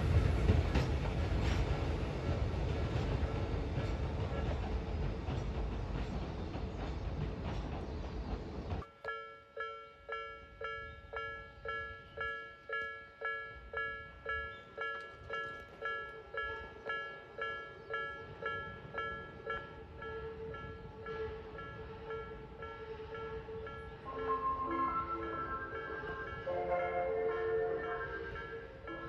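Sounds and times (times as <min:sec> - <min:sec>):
level-crossing warning bell ringing: 0:08.8 - 0:29.0.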